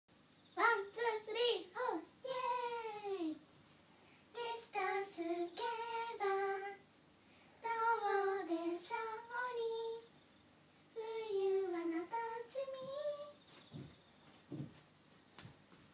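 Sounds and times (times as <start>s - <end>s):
girls singing unaccompanied: 0.6s - 3.4s, 4.3s - 6.9s, 7.6s - 10.1s, 11.0s - 13.4s.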